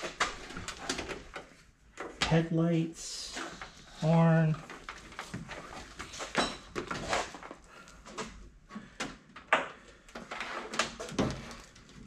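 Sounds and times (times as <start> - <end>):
wiring harness rustling: 0.0 - 2.2.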